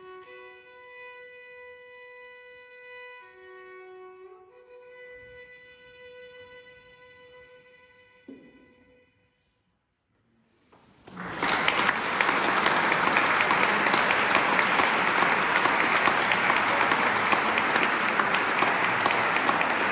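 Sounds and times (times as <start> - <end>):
audience applause: 11.0 - 19.9.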